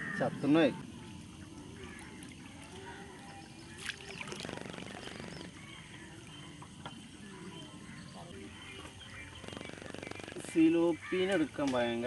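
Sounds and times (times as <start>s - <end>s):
water dripping and trickling: 0.2s - 7.3s
rapid buzzing rattle: 4.2s - 5.6s, 9.3s - 10.8s.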